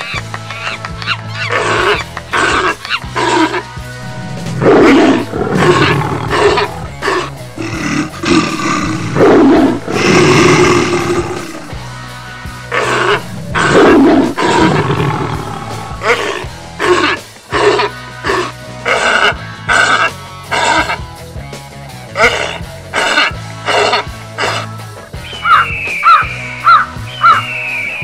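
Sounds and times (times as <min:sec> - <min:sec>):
background music: 0:00.0 - 0:28.0
big cats roaring: 0:01.5 - 0:11.9, 0:12.7 - 0:21.0, 0:22.2 - 0:24.8.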